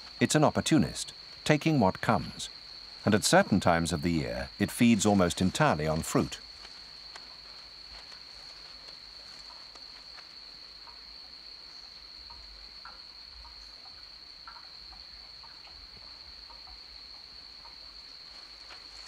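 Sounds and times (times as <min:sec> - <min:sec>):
fox rustling in dry leaves: 0:05.0 - 0:10.6, 0:18.3 - 0:19.0.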